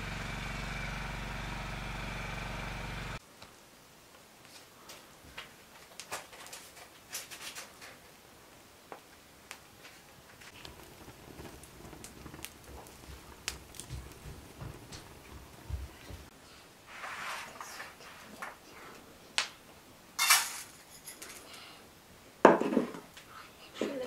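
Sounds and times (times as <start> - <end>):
wood fire crackling and popping: 0.1 - 8.2, 8.9 - 16.3, 19.4 - 19.6
dull low thumps: 10.7 - 16.3.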